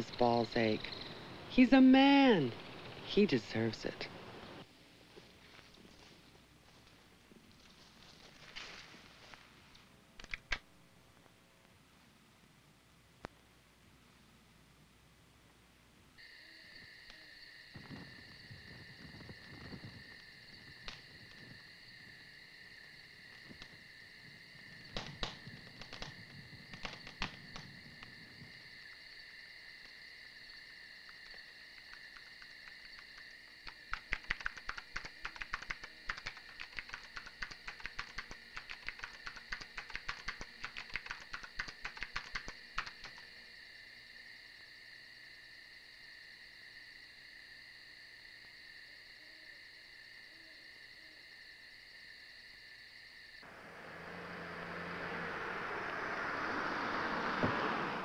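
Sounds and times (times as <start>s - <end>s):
crickets chirping: 0.0s - 11.2s, 16.2s - 58.0s
sharp irregular clicking: 10.2s - 10.7s, 20.8s - 21.4s, 24.9s - 28.2s, 31.0s - 43.3s.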